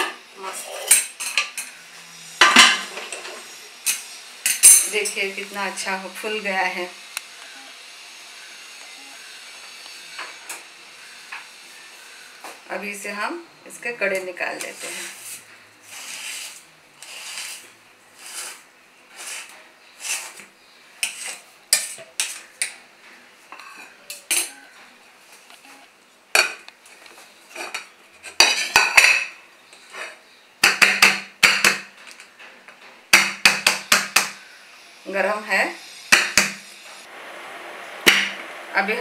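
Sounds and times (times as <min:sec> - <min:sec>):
knife scraping inside steel tin: 0:14.6 - 0:20.4.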